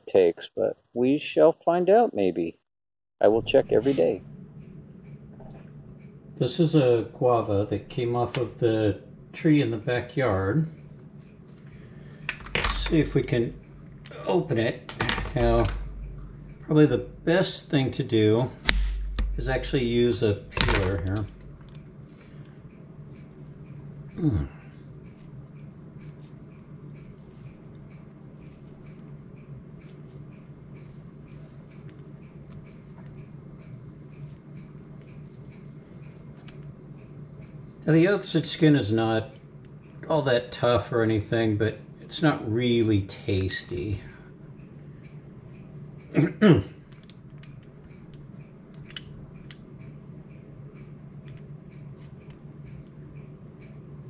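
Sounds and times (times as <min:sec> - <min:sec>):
steady low hum: 0:03.2 - 0:54.0
fruit skin being peeled: 0:18.6 - 0:38.1.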